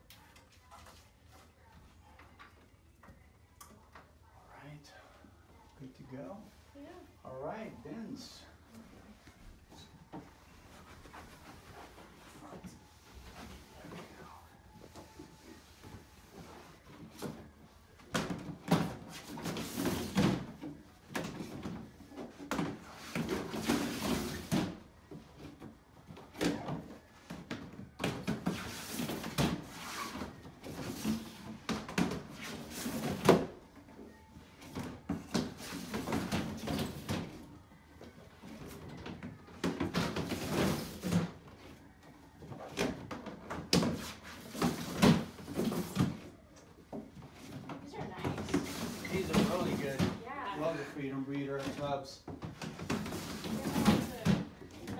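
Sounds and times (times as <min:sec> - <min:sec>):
plastic tubs scraping and knocking: 0:48.3 - 0:50.2.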